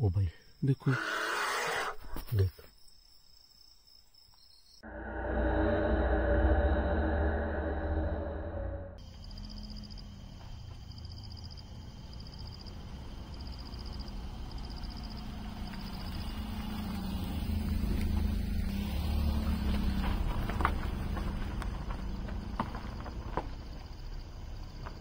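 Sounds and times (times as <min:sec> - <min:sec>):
car engine humming: 0:11.7 - 0:23.5.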